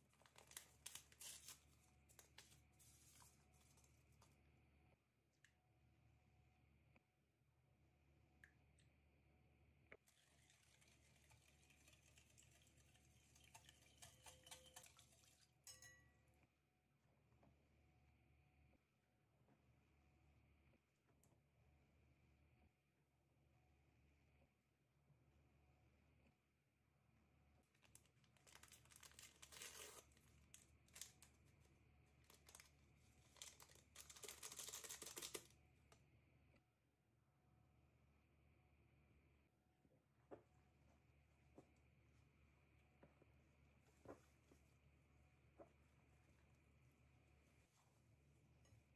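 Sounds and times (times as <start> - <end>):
sachet crinkling and tearing: 0.0 - 3.8, 27.8 - 31.6, 32.2 - 35.5
whisk stirring in glass bowl: 10.1 - 16.0.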